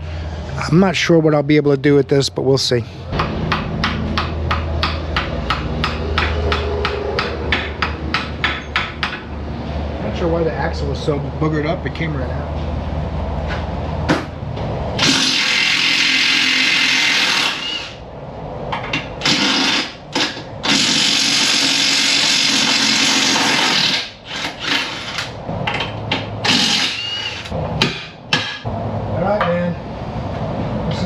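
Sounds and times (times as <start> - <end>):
impact wrench hammering on bolts: 3.1 - 9.3, 18.7 - 28.7.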